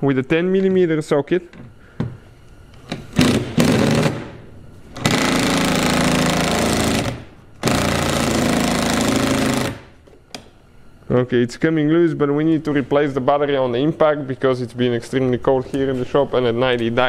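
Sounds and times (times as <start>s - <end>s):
impact driver hammering bolt: 2.9s - 4.3s.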